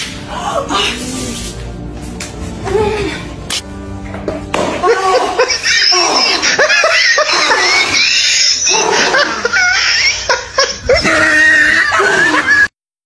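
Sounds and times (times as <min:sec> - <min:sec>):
people laughing: 0:04.8 - 0:12.7.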